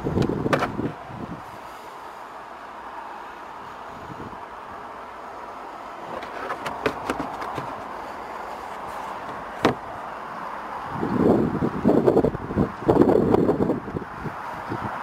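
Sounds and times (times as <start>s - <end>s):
light clicks and knocks: 6.0s - 8.0s.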